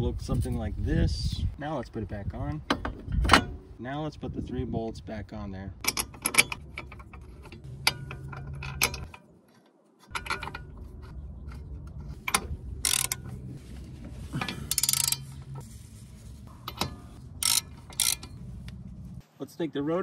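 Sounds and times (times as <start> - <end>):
hand ratchet clicking: 12.2 - 13.4, 14.6 - 15.3, 16.7 - 18.4
metallic clinks of socket and bolts: 14.6 - 15.2, 16.6 - 18.4.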